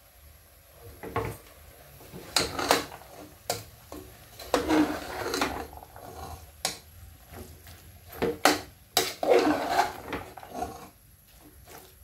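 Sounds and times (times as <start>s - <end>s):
ladle scraping metal pot: 2.2s - 3.7s, 4.3s - 6.8s, 8.1s - 12.0s.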